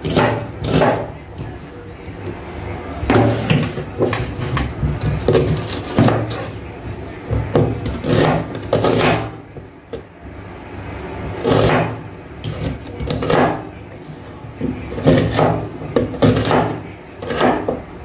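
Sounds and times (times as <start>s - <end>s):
knife chopping on wooden board: 0.0s - 1.1s, 3.1s - 6.4s, 7.3s - 9.4s, 11.4s - 13.6s, 15.0s - 17.8s.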